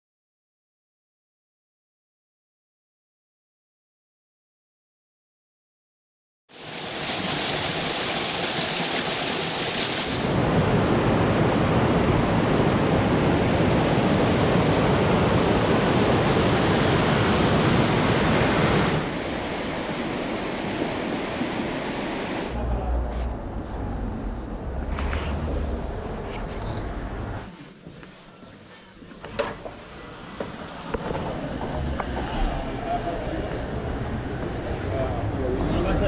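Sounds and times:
steady rushing noise: 9.8s - 27.4s, 29.7s - 36.0s.

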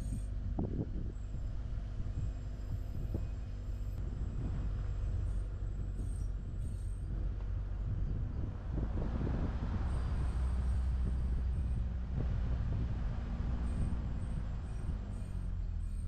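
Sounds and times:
vehicle engine and tyre rumble: 0.0s - 16.0s.

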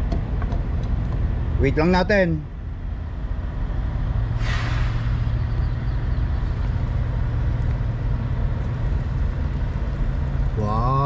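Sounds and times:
brief hiss: 4.4s - 5.3s.

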